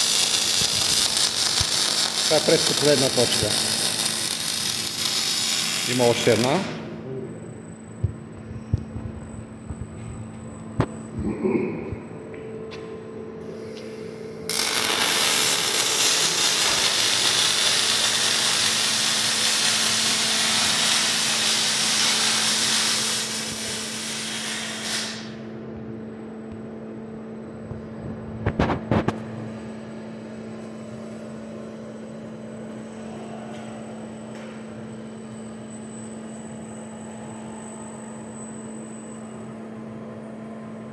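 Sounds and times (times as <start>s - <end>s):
welding arc sizzling: 0.0s - 6.9s, 13.6s - 25.4s
steady low hum: 0.0s - 17.7s, 23.3s - 40.9s.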